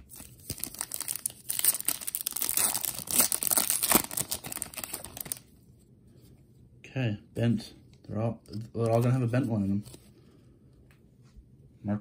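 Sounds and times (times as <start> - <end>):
foil wrapper tearing and crinkling: 0.1 - 5.4.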